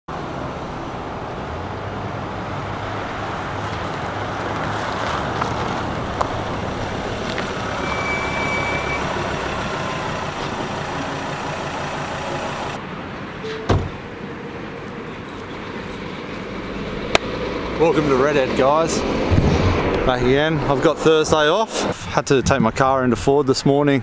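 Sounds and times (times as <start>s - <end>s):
truck engine humming: 0.1s - 13.0s
tyre and road noise: 0.1s - 23.4s.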